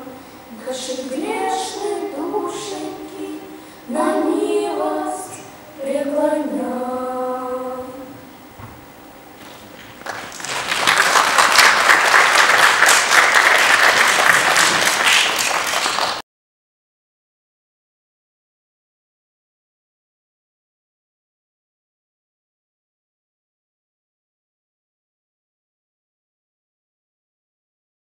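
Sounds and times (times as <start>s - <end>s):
children's choir singing: 0.0s - 8.3s
audience applause: 10.0s - 16.2s.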